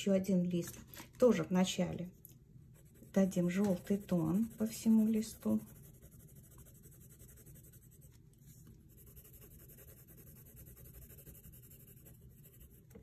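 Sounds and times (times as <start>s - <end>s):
pencil scratching on paper: 2.7s - 13.0s.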